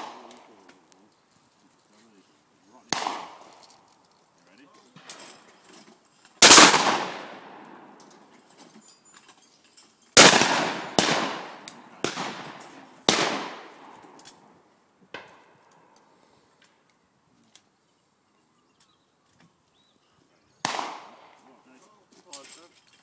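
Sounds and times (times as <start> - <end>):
shotgun shots echoing: 0.0 - 0.7, 2.9 - 3.7, 6.4 - 8.0, 10.2 - 14.5, 20.6 - 21.5.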